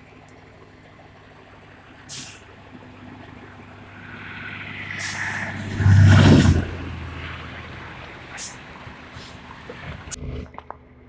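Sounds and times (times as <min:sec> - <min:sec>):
truck engine running: 0:00.0 - 0:11.0
short hisses: 0:02.1 - 0:02.4, 0:04.6 - 0:05.8, 0:08.4 - 0:08.6.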